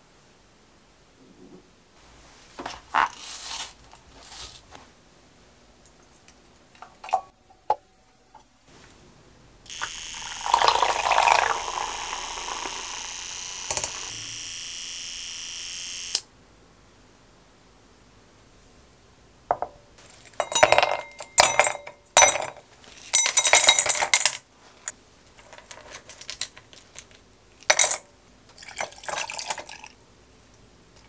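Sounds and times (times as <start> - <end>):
milk frother motor buzz: 9.7 - 16.2
knocks and clatter of handling: 19.5 - 28.0.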